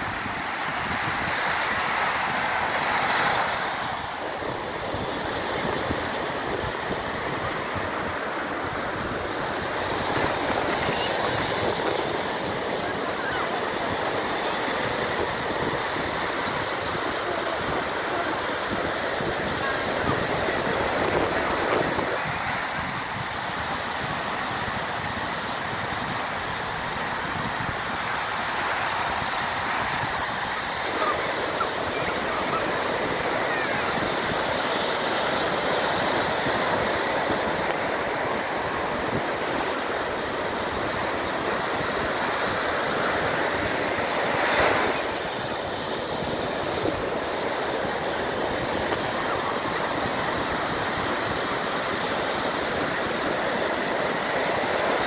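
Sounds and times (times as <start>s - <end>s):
ocean surf breaking on sand: 0.0s - 55.0s.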